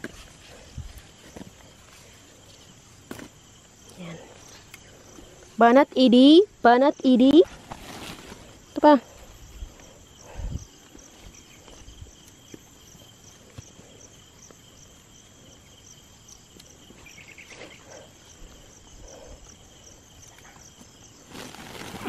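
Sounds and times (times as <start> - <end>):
insects chirping trill: 0.0 - 22.0
sack rustling: 7.4 - 8.7, 21.2 - 22.0.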